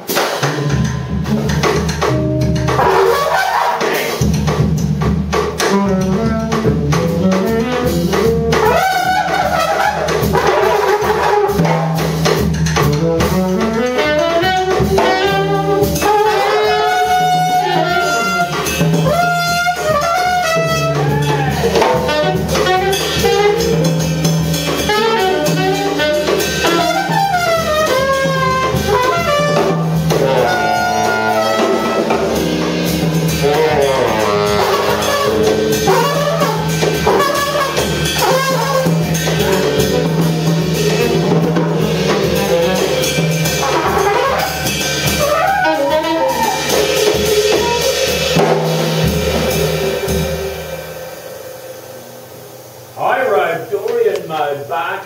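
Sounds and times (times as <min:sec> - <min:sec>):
trumpet: 0:00.0 - 0:04.3, 0:05.6 - 0:12.1, 0:12.8 - 0:50.4
busy drums: 0:00.0 - 0:55.0
saxophone: 0:02.0 - 0:04.2, 0:05.6 - 0:12.0, 0:12.8 - 0:48.7.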